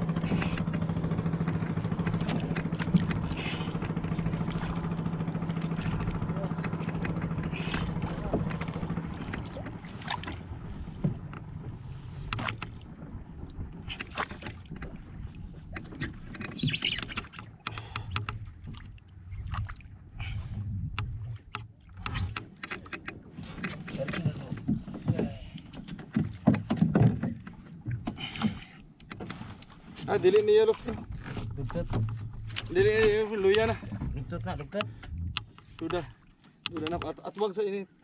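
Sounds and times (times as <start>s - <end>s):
water sloshing against a boat: 0.0s - 38.0s
low rumble: 19.3s - 21.5s, 30.8s - 35.6s.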